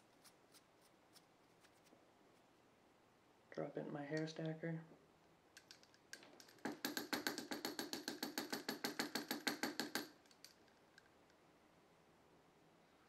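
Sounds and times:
metal hair stacker tapping on bench: 6.6 - 10.2.

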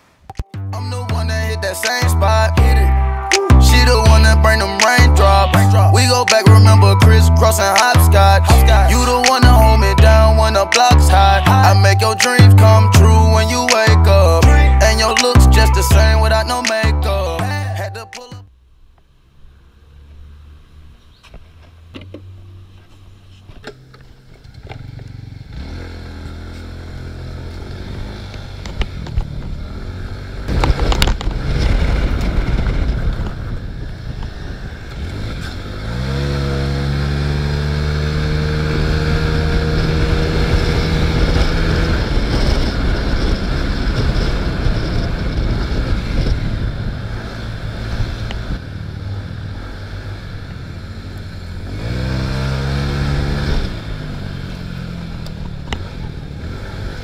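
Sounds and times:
scooter engine accelerating: 18.5 - 57.0
wind on microphone: 28.9 - 36.2, 38.6 - 48.8.

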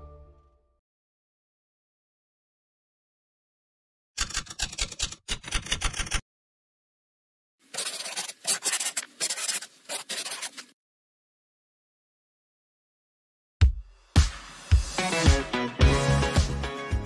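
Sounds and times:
pen scratching on paper: 7.7 - 10.8.

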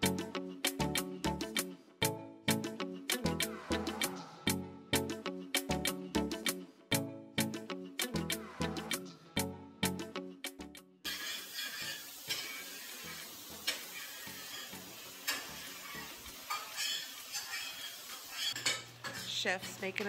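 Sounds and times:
eggs sizzling in a frying pan: 11.0 - 20.0
spatula clinking on pan: 11.1 - 12.6, 13.6 - 19.3
spatula scraping a pan: 11.1 - 19.4.

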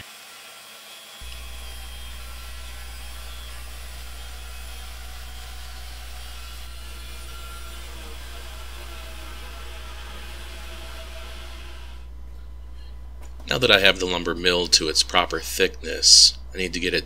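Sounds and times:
bandsaw running: 0.0 - 12.2.

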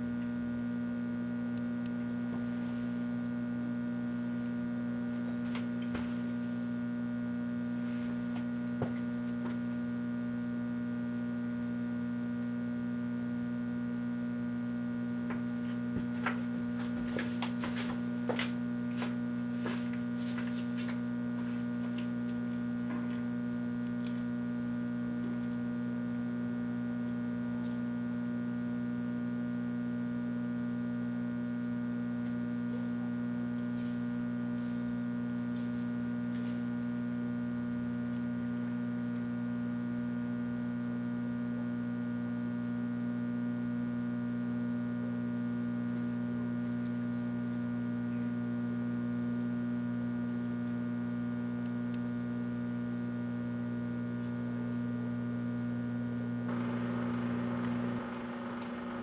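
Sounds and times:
microwave oven humming: 0.0 - 59.0.

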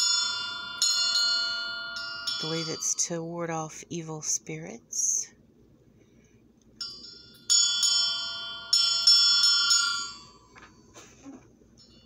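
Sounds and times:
small metal bell ringing: 0.0 - 3.2, 6.8 - 10.6, 11.8 - 12.0.

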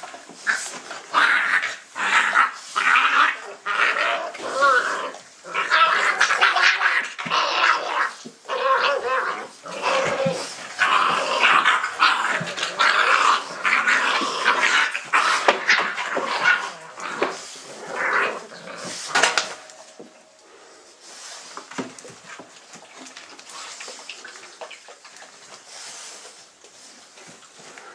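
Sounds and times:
puppies growling and yipping: 0.4 - 19.9.

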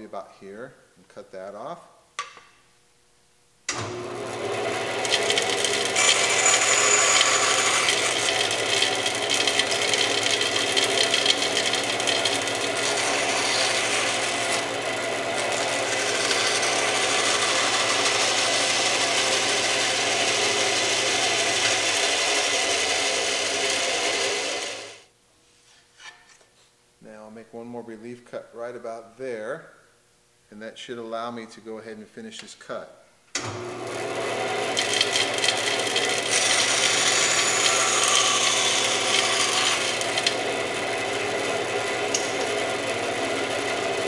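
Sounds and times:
band saw cutting wood: 3.7 - 25.0, 33.4 - 44.0.

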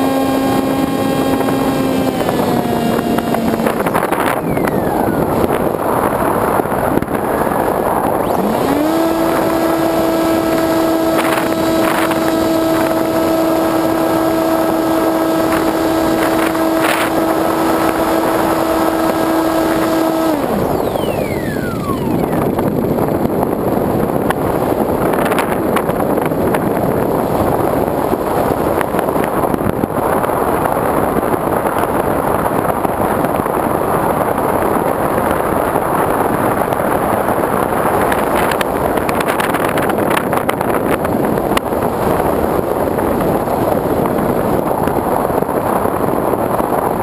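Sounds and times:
faint high whine: 0.0 - 23.3
air rushing over model plane: 0.0 - 47.0.

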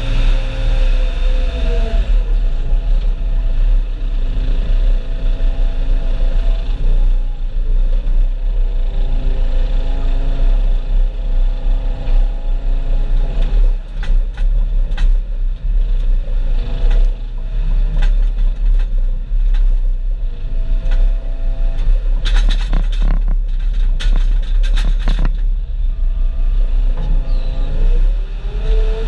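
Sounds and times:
farm machinery engine rumbling: 0.0 - 29.0
knocks and clatters: 13.4 - 15.3, 16.8 - 19.9, 21.8 - 25.6.

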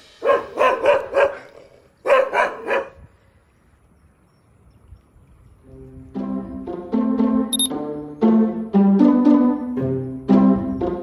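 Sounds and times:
dog barking: 0.2 - 3.0.

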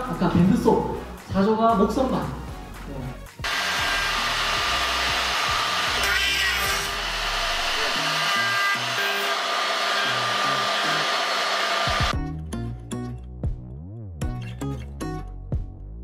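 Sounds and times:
wood router whining: 3.4 - 12.2.

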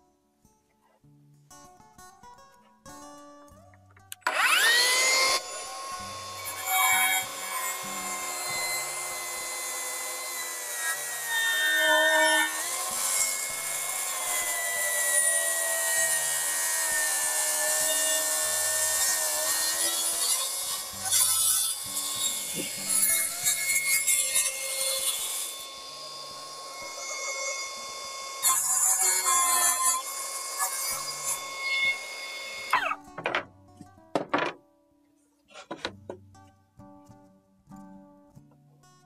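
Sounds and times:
track saw cutting wood: 4.2 - 33.4.

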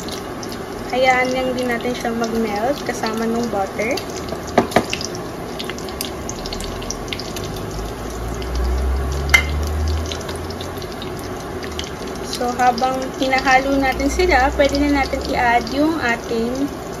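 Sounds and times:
butter sizzling in a frying pan: 0.0 - 17.0
spatula knocking against pan: 4.5 - 5.0.

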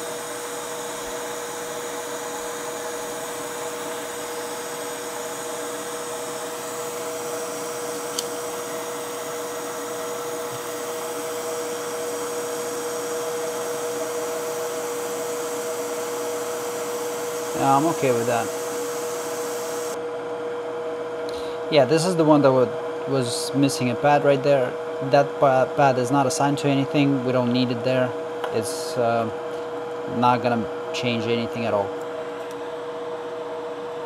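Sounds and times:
electric blower whirring: 0.0 - 20.0.

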